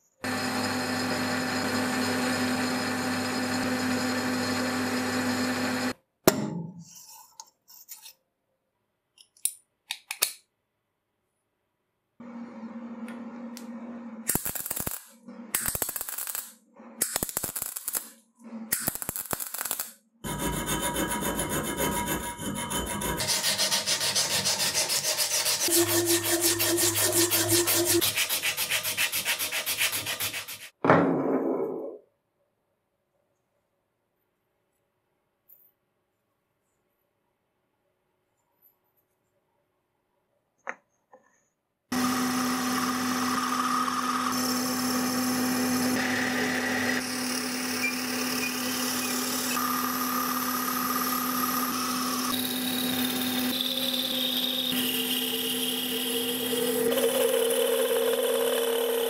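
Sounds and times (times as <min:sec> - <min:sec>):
fast even rubbing strokes: 0:23.2 - 0:30.7.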